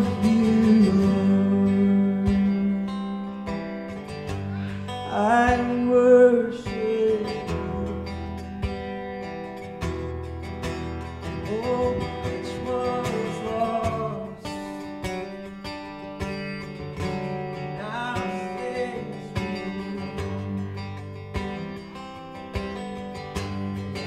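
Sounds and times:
strummed acoustic guitar: 0.0 - 24.0
man singing worship song: 5.1 - 8.2, 11.5 - 14.4.

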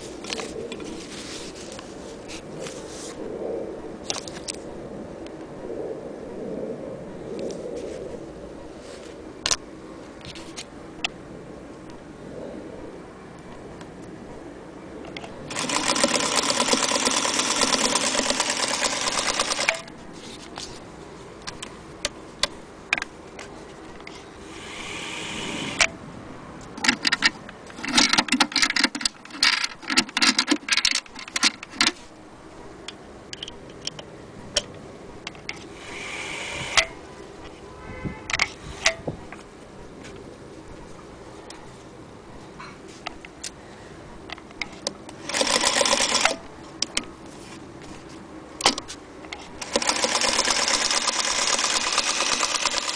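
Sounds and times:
sewing machine running: 15.5 - 19.7, 45.2 - 46.3, 49.6 - 52.9
sewing machine clicks: 15.5 - 19.9, 45.2 - 46.4, 49.6 - 52.9.

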